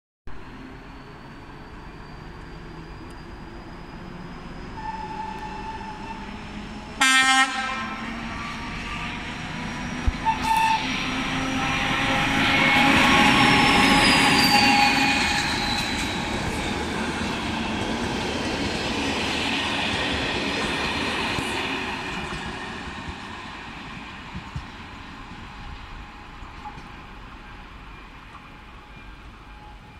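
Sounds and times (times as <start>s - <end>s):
diesel locomotive passing: 0.3s - 29.9s
train horn blast: 7.0s - 9.1s, 10.2s - 15.2s.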